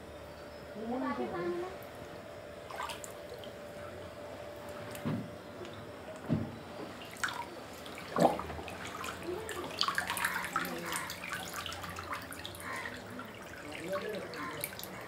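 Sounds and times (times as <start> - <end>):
water dripping and trickling: 2.6 - 5.0, 7.0 - 15.0
man wading through floodwater: 7.0 - 15.0.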